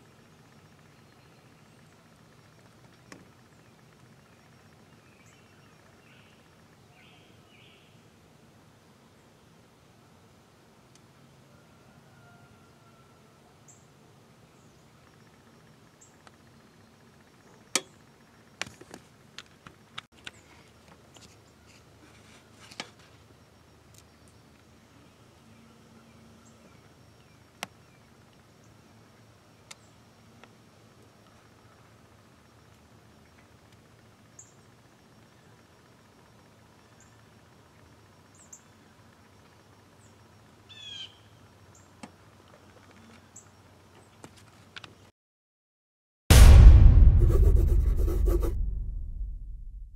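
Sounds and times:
faint bird chirps: 0:00.1 - 0:02.7, 0:03.4 - 0:08.1, 0:38.0 - 0:42.0.

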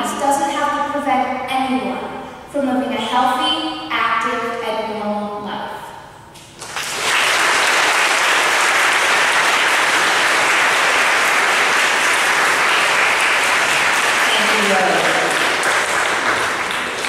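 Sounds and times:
audience applauding: 0:06.6 - 0:17.0.

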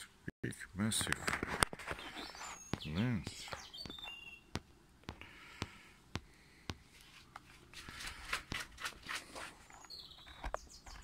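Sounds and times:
hands rustling and rubbing eyepiece: 0:01.0 - 0:04.4, 0:06.8 - 0:11.0.

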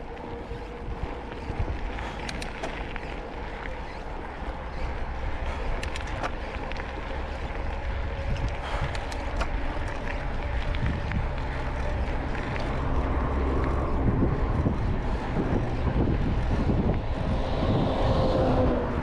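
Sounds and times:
road noise: 0:00.0 - 0:19.0
vehicle engine hum: 0:00.0 - 0:19.0
wind rushing over microphone: 0:00.0 - 0:19.0
faint ticks: 0:02.0 - 0:04.0, 0:05.5 - 0:06.9.

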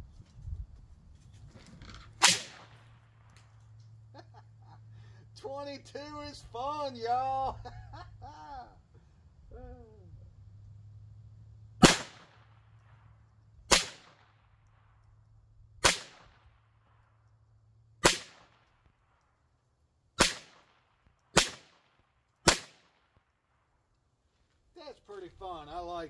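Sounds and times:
pistol shots: 0:02.2 - 0:03.6, 0:11.8 - 0:13.0, 0:13.7 - 0:14.5, 0:15.8 - 0:16.8, 0:18.0 - 0:18.8, 0:20.2 - 0:23.3.

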